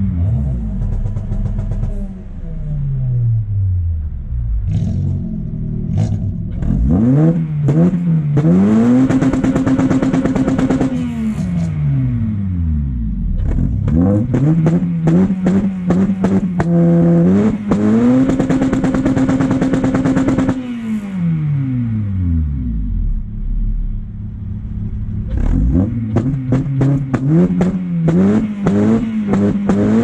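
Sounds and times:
car engine revving: 0:00.0 - 0:30.0
exhaust pops and crackles: 0:17.7 - 0:20.6.

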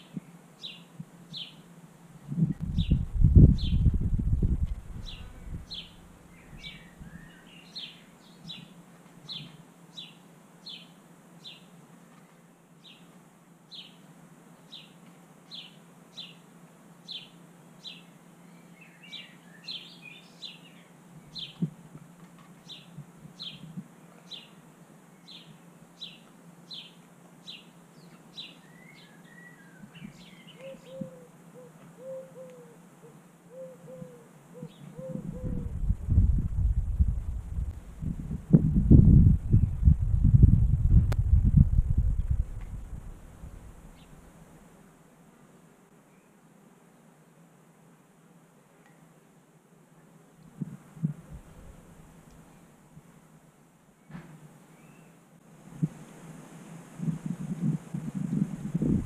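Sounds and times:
songbird calling: 0:00.0 - 0:01.7, 0:05.0 - 0:13.1, 0:13.7 - 0:14.0, 0:14.6 - 0:21.7, 0:22.6 - 0:35.9, 0:54.0 - 0:55.2
faint steady hum: 0:00.0 - 0:59.0.

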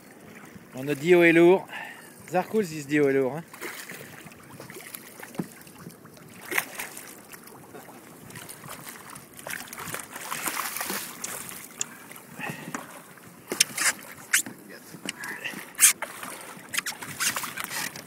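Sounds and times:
water splashing against boat: 0:00.0 - 0:18.0.

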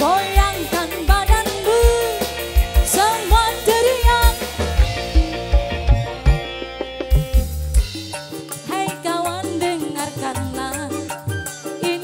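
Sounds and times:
woman singing: 0:00.0 - 0:05.7, 0:08.6 - 0:12.0
band playing: 0:00.0 - 0:12.0
low drum beat: 0:02.6 - 0:08.2.

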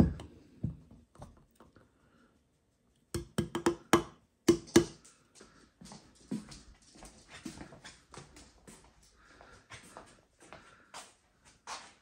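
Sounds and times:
sharp knocks on hard surface: 0:03.2 - 0:05.0.

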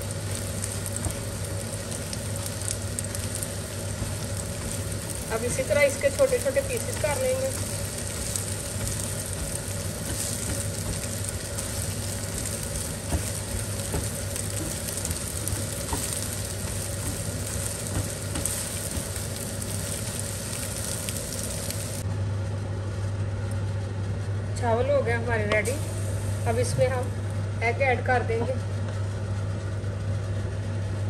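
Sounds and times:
egg sizzling in a pan: 0:00.0 - 0:22.0
low steady hum: 0:00.0 - 0:31.0
spatula chopping and scraping: 0:00.3 - 0:20.2.

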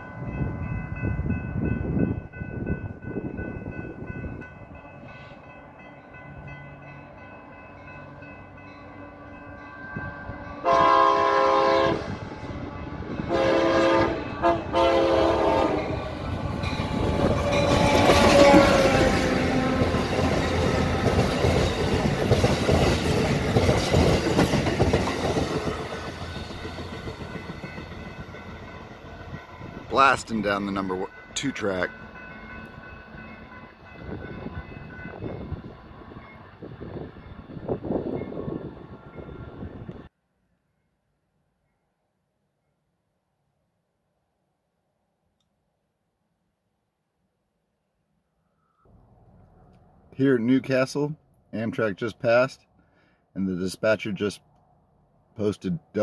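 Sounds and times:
crossing bells ringing: 0:00.0 - 0:11.8, 0:12.4 - 0:39.8
locomotive horn: 0:10.0 - 0:16.2, 0:17.0 - 0:20.8
train wheels clacking: 0:16.6 - 0:28.9.

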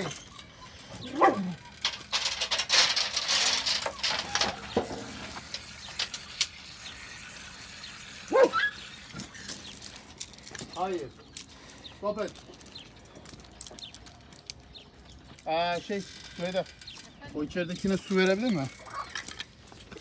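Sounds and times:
dog yelping: 0:00.0 - 0:01.8, 0:08.3 - 0:09.0.

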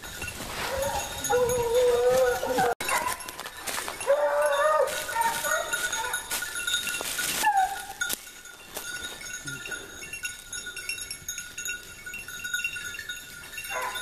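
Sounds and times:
rustling noise: 0:00.0 - 0:09.2
hunting hounds baying: 0:00.3 - 0:10.8, 0:13.6 - 0:14.0.

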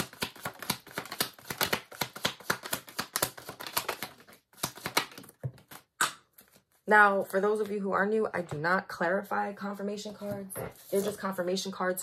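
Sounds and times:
cards being shuffled: 0:00.0 - 0:07.7, 0:10.2 - 0:11.4.

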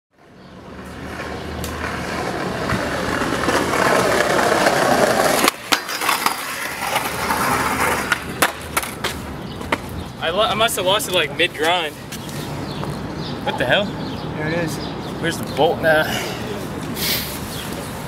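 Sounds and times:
skateboard wheels rolling on pavers: 0:00.2 - 0:13.2
skateboard deck clacks: 0:01.2 - 0:09.9.

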